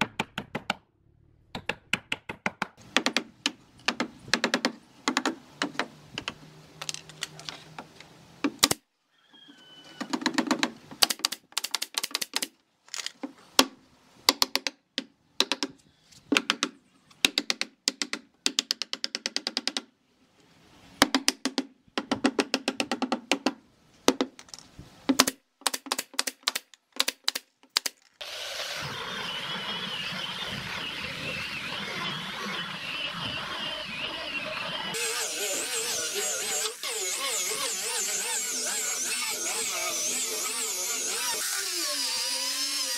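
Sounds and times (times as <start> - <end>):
hammer tapping nails: 1.5 - 6.4
nail gun clicking: 10.5 - 13.1, 25.2 - 28.0
angle grinder sanding wood: 28.2 - 42.9.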